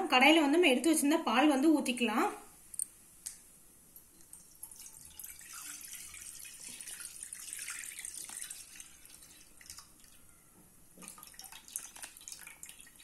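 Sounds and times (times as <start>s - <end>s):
milk pouring into a pan: 4.3s - 10.3s, 11.0s - 13.0s.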